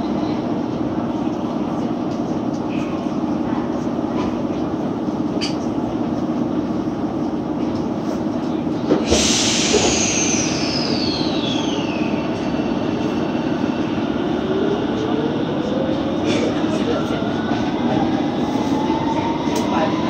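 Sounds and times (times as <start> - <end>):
subway car cabin hum: 0.0 - 20.0
compressed air hiss: 9.1 - 11.0
falling whistling tones: 9.6 - 12.7.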